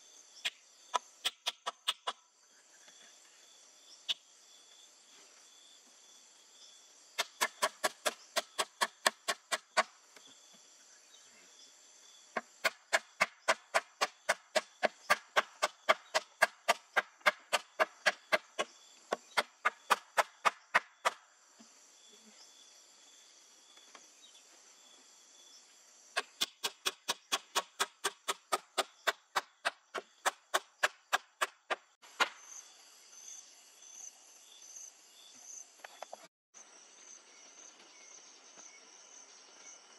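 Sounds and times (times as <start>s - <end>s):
insects droning: 0.0s - 39.9s
hatchet striking wooden pole: 7.2s - 9.9s, 12.6s - 21.2s, 26.2s - 32.4s.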